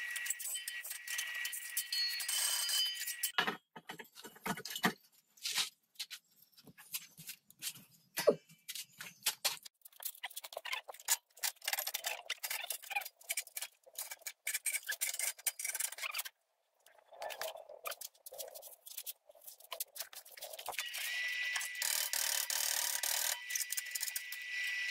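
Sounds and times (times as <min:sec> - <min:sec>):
metal parts scraping and rubbing: 0:00.0 - 0:03.4, 0:09.8 - 0:16.4, 0:17.0 - 0:24.9.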